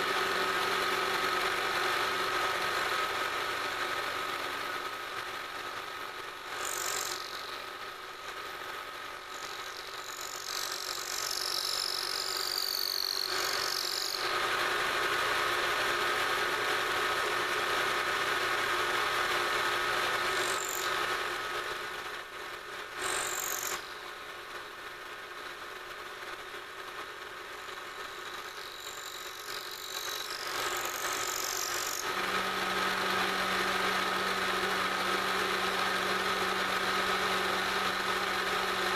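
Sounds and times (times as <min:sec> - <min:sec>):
milling machine whine: 0:00.0 - 0:25.2, 0:26.3 - 0:38.9
end mill cutting squeals: 0:09.4 - 0:14.3.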